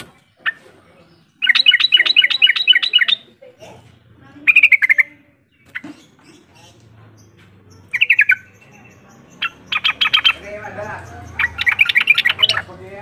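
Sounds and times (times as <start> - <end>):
bird calling with bubbling notes: 1.4 - 3.3, 9.4 - 10.4, 11.3 - 12.7.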